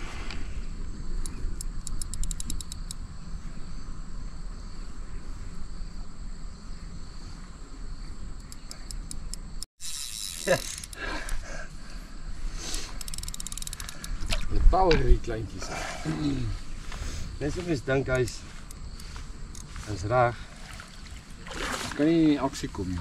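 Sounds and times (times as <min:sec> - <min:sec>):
fishing reel clicking: 0:01.2 - 0:03.0, 0:08.5 - 0:11.5, 0:12.8 - 0:14.2.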